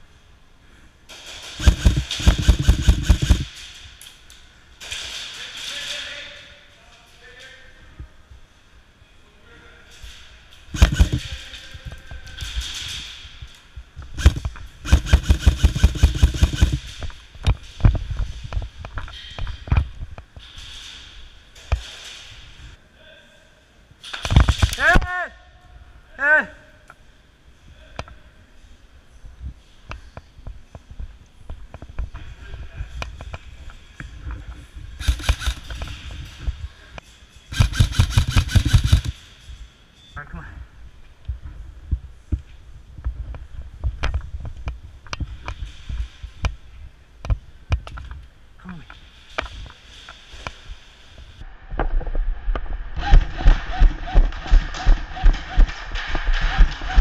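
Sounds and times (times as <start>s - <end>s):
rapid airsoft gunfire: 1.4s - 3.6s, 10.7s - 11.5s, 14.2s - 17.0s, 35.0s - 36.0s, 37.5s - 39.2s.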